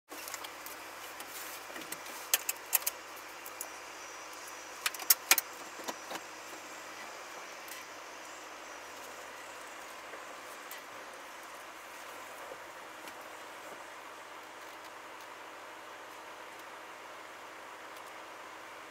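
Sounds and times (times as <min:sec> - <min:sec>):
sharp rattling clicks: 0:01.8 - 0:03.7, 0:04.8 - 0:06.2.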